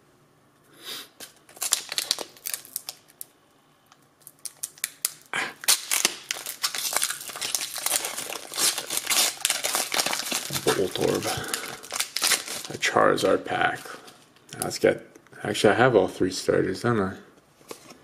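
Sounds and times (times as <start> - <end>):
foil wrapper crinkling: 1.2 - 3.3, 4.2 - 12.9
foil wrapper tearing: 1.2 - 3.3, 4.2 - 12.8.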